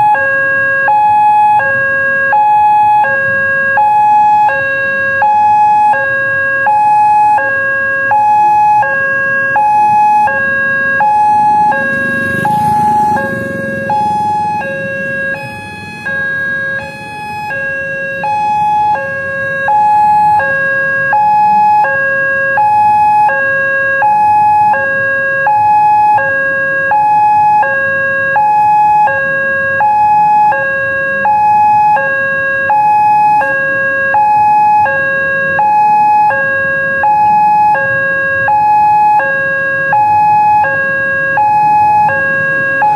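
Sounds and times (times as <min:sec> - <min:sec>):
level crossing two-tone alarm: 0:00.0 - 0:42.9
vehicle passing: 0:10.2 - 0:17.1.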